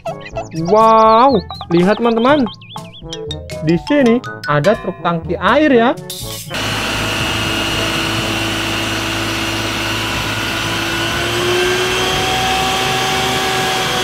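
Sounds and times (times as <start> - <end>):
truck diesel engine running: 6.5 - 14.0.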